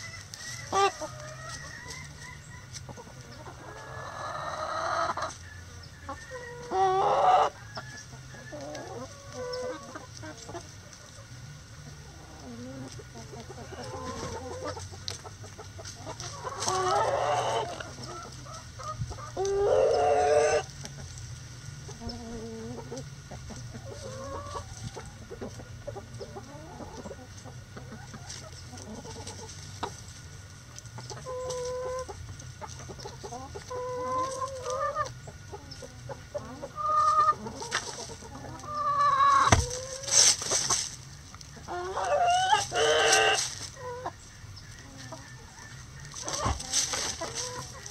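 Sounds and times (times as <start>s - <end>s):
rooster crowing: 0.0s - 2.8s, 6.0s - 9.1s
chickens clucking: 0.0s - 47.9s.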